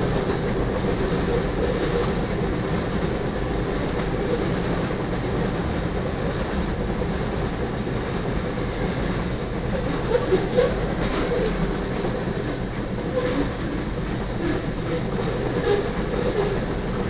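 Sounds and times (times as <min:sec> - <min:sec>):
freight train rolling on rails: 0:00.0 - 0:17.0.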